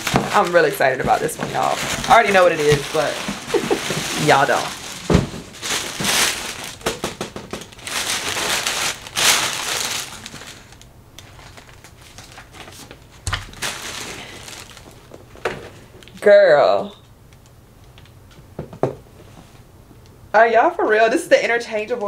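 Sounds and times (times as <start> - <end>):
packaging crinkling and rustling: 0.0 - 16.2.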